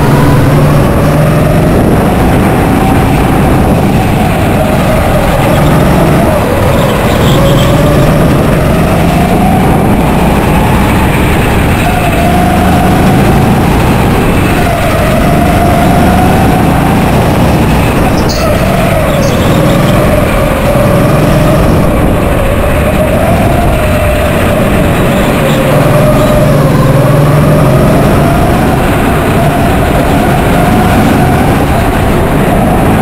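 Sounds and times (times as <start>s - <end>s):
go-kart motor running hard: 0.0s - 33.0s.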